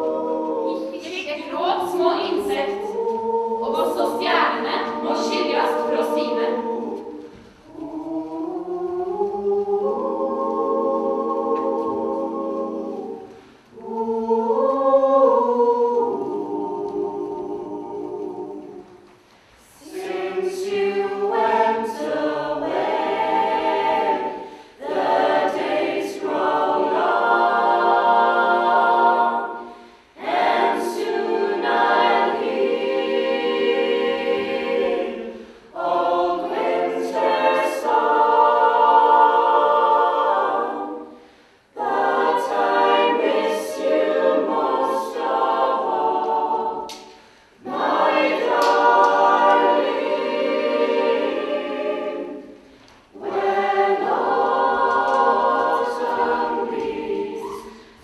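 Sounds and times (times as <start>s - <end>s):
group singing a cappella: 0.0s - 58.0s.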